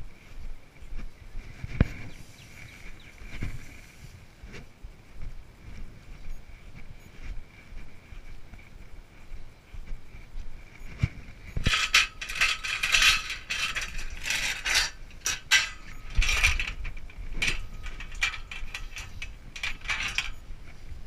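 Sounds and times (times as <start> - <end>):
steel posts clanking together: 11.6 - 20.4.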